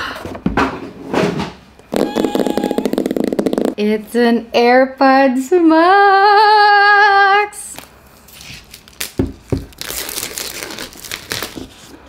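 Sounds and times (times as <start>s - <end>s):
plastic shrink-wrap crinkling: 8.3s - 12.0s.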